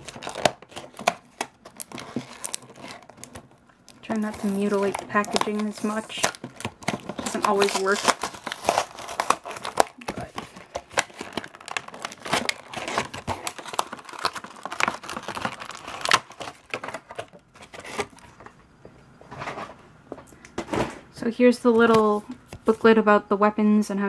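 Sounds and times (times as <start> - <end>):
plastic packaging crinkling: 0.0 - 18.6.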